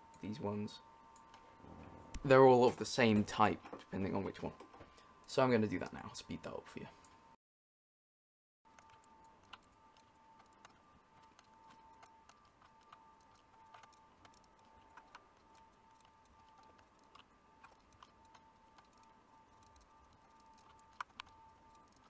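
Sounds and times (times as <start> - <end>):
faint high whine: 0.0 - 7.4, 8.7 - 22.0
faint irregular clicks: 8.7 - 22.0.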